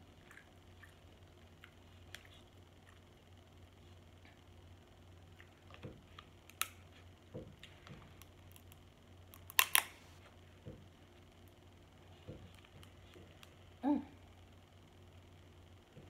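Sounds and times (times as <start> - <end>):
faint hum: 0.0 - 16.0
chewing sounds: 0.1 - 3.1.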